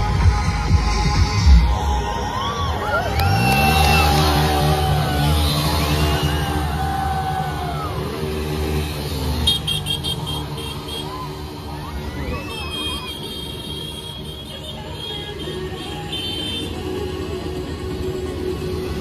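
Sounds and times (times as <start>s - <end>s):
music playing: 0.0s - 19.0s
motorcycle engine revving: 3.2s - 11.8s.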